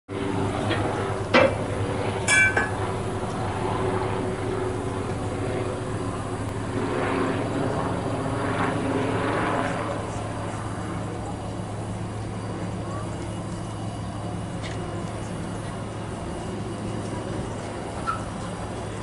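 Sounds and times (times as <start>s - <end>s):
ringing metallic clang: 2.3s - 2.8s, 18.0s - 18.4s
steam locomotive drone: 7.4s - 19.0s.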